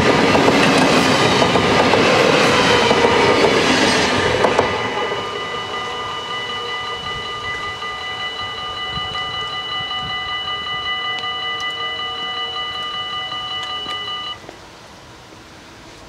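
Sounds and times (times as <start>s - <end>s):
train rumble: 0.0s - 16.0s
level crossing bells ringing: 3.6s - 14.4s.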